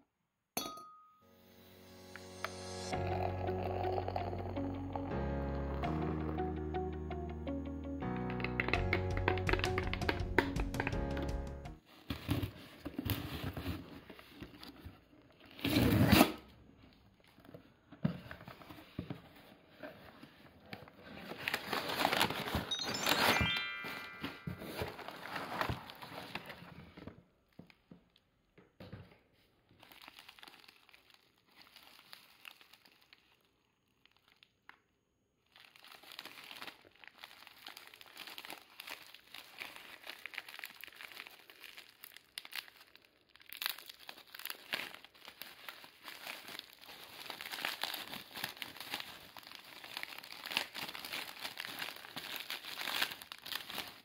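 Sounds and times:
bubble wrap crinkling: 18.5 - 22.9, 24.6 - 26.8, 29.6 - 34.8, 35.4 - 54.0.

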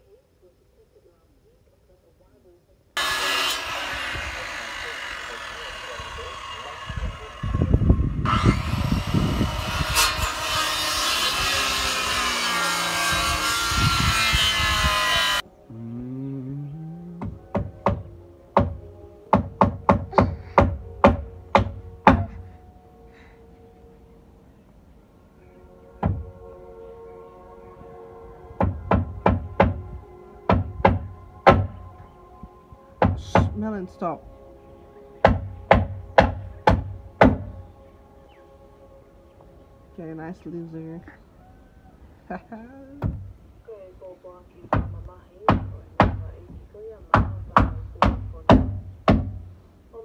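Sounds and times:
circular saw cutting wood: 3.0 - 15.4.

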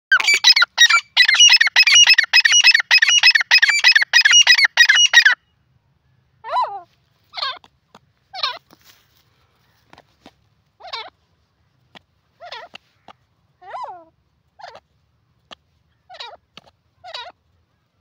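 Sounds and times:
francolin calling: 0.1 - 5.4.

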